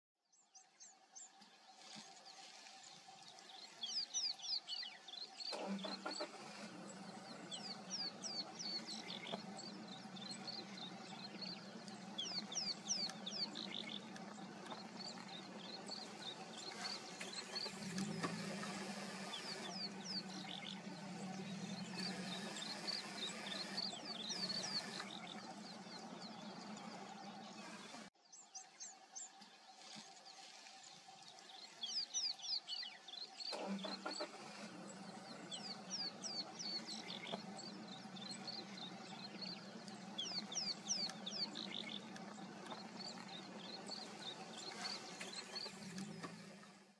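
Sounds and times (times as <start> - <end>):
small birds chirping: 0.3 - 46.9
vehicle engine idling: 4.8 - 28.1, 32.8 - 46.9.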